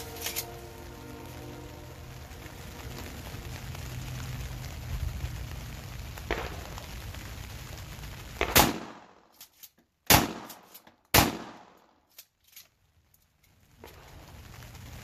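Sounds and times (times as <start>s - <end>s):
shotgun shots with echo: 8.4s - 9.2s, 10.1s - 11.8s.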